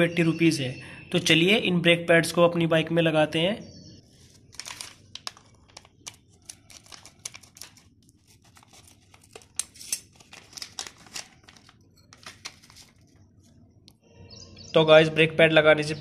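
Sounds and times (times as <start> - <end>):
plastic packet crinkling: 4.1 - 13.6
scissors cutting plastic: 4.6 - 13.0.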